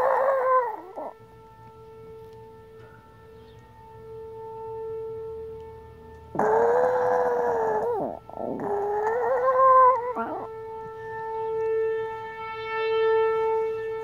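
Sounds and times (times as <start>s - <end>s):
dog howling: 0.0s - 1.2s, 6.4s - 10.5s
siren steady tone: 0.0s - 14.0s.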